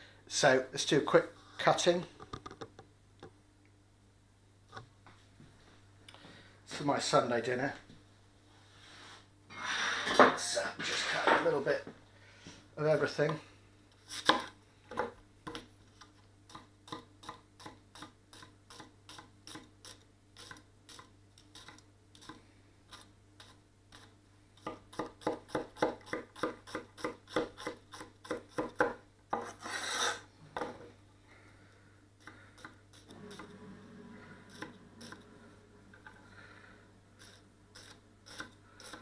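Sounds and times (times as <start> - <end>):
knife chopping onion on board: 14.1 - 14.5, 16.5 - 30.7, 37.2 - 39.0
knife scraping wooden board: 29.4 - 30.3, 32.6 - 33.6, 34.5 - 35.2, 37.2 - 39.0.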